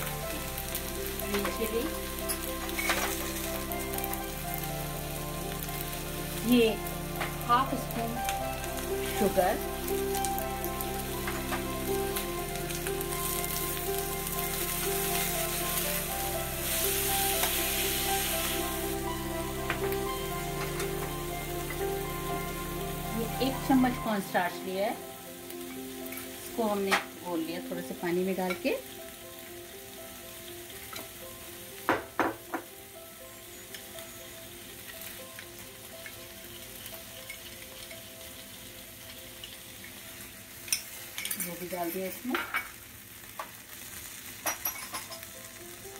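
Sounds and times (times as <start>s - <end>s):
vegetables sizzling in hot oil: 0.0s - 45.9s
utensils and glassware clinking: 2.3s - 3.2s, 40.7s - 42.8s, 44.4s - 45.3s.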